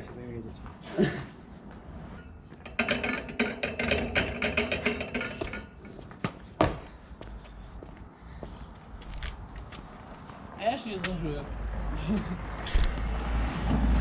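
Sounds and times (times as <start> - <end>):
metal railing rattling and clanking: 2.2 - 6.0
feet landing on paving stones: 6.1 - 7.0.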